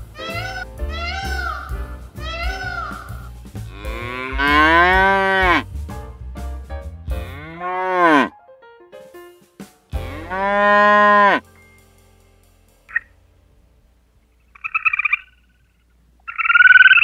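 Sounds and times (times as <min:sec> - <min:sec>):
cow mooing: 0:03.7 - 0:05.6, 0:07.2 - 0:08.3, 0:10.0 - 0:11.4.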